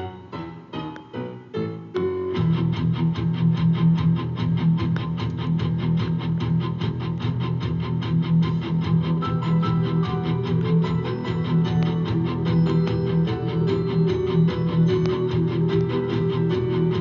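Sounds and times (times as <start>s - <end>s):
guitar-driven music: 0.0s - 17.0s.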